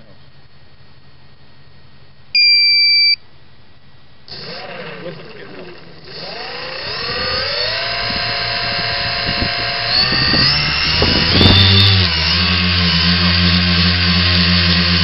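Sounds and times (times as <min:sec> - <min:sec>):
drone motors whining: 0:04.3 - 0:15.0.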